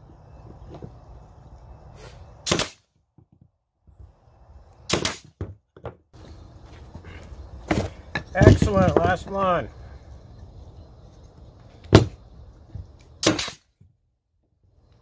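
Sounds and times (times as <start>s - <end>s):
nail gun firing: 2.4s - 2.8s, 4.9s - 5.4s, 13.2s - 13.6s.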